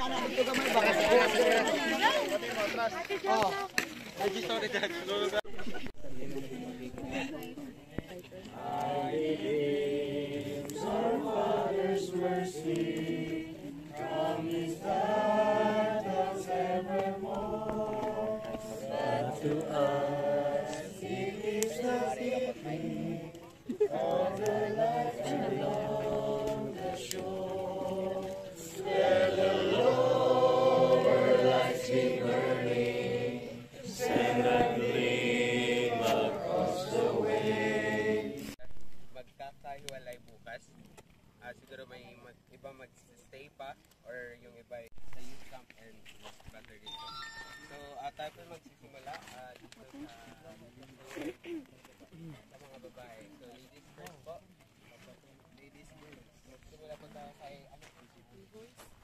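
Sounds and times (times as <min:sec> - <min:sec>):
choir singing: 0:08.5 - 0:38.6.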